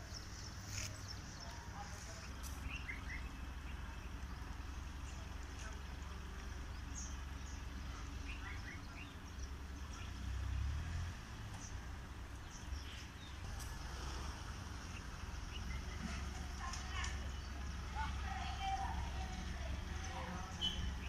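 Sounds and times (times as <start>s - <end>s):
bird chirps: 0.0s - 10.2s, 20.0s - 21.0s.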